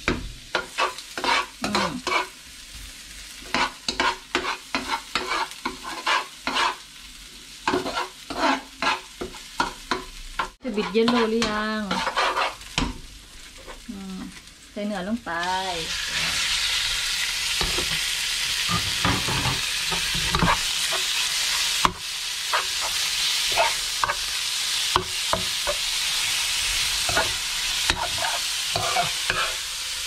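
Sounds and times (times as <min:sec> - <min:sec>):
beef sizzling in oil: 0:00.0 - 0:30.0
metal spoon scraping a wok: 0:00.6 - 0:02.4, 0:03.5 - 0:06.8, 0:07.7 - 0:09.1, 0:10.7 - 0:12.7, 0:18.6 - 0:24.3, 0:27.0 - 0:29.7.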